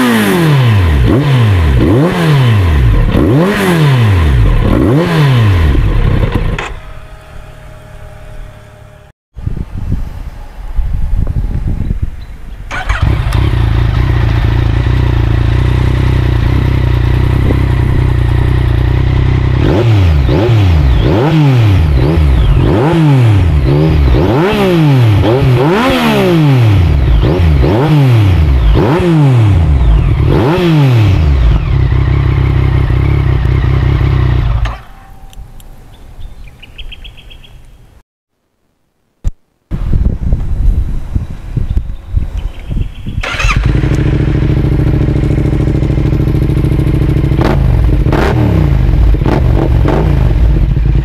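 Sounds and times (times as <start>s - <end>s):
motorcycle engine revving: 0.0s - 35.6s, 43.0s - 51.0s.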